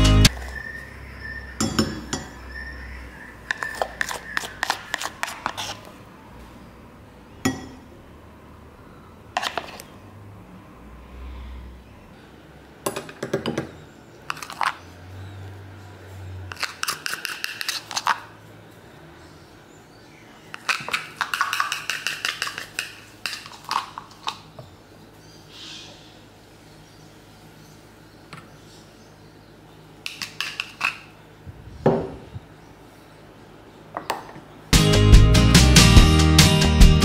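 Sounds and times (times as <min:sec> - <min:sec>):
spoon clinking against dishes: 0:01.6 - 0:02.4, 0:07.4 - 0:07.8.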